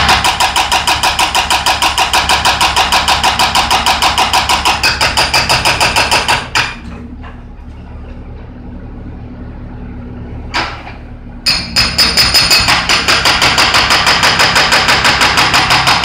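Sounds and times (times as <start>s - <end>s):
hydraulic breaker hammering concrete: 0.0s - 6.9s, 11.5s - 16.0s
excavator engine running: 0.0s - 16.0s.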